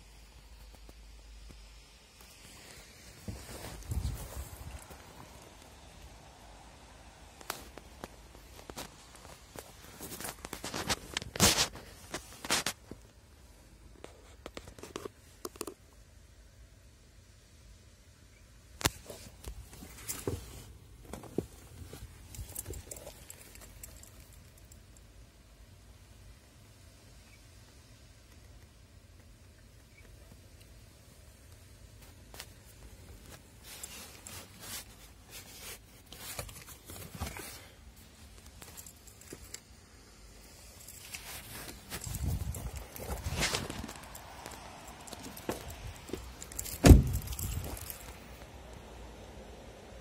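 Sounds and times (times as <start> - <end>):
hand rustling on plastic trim: 7.4 - 13.0, 18.8 - 24.7, 32.0 - 39.7, 40.5 - 48.3.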